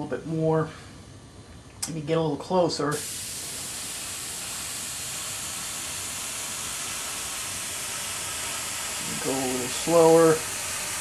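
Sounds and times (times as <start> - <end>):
airbrush hissing: 2.9 - 11.0.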